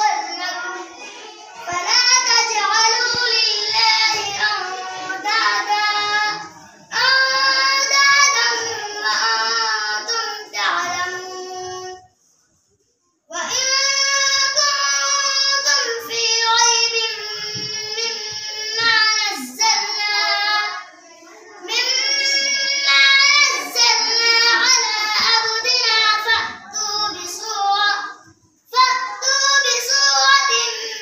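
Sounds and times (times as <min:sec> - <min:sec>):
child chanting melodically: 0:00.0 - 0:12.2, 0:13.3 - 0:31.0.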